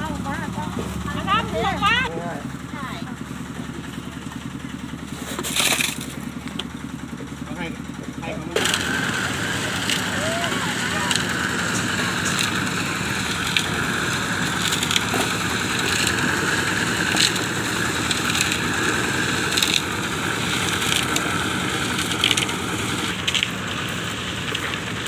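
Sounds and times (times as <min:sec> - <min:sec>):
concrete mixer churning: 0:00.0 - 0:25.0
buckets clanking and scraping: 0:05.0 - 0:06.7, 0:08.2 - 0:25.0.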